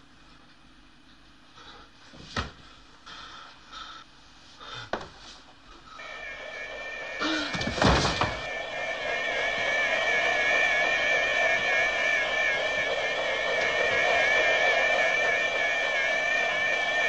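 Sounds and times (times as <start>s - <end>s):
wavering high tone: 6.0s - 17.0s.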